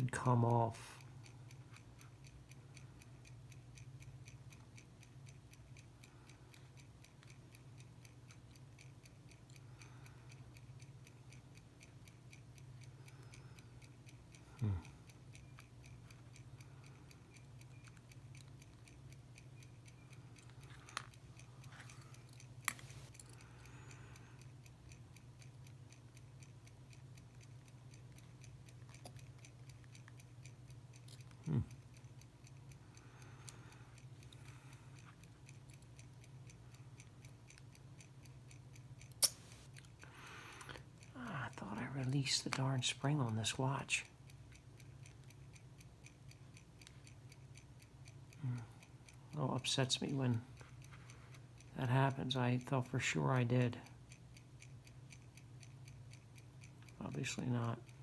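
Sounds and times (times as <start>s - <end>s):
quiet even ticking: 0.0s - 58.0s
small metal tool clicks: 39.0s - 39.9s.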